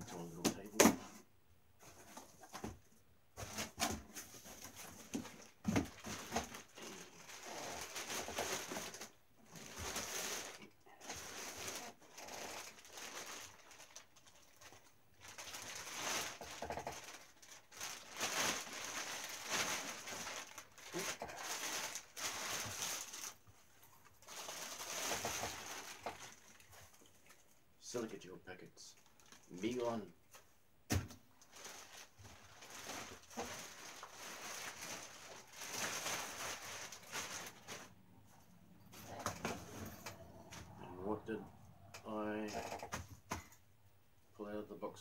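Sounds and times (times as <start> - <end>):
plastic packaging crinkling: 3.4 - 27.4, 29.0 - 30.4, 31.3 - 38.0.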